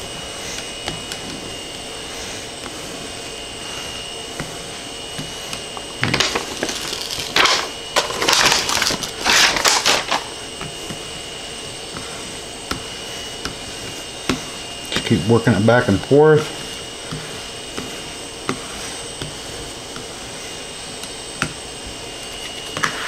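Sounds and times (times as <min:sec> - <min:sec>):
paper liner peeling and crackling: 0:05.9 - 0:10.4.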